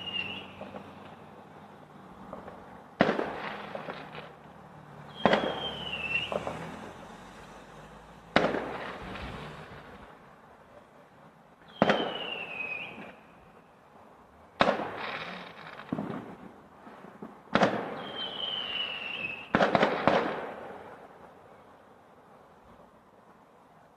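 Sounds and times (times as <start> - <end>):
falling whistle: 0.0 - 0.7, 5.1 - 6.5, 11.7 - 13.2, 18.0 - 19.5
distant fireworks bangs: 0.0 - 1.5, 2.2 - 7.0, 8.3 - 10.2, 11.6 - 13.3, 14.6 - 21.2.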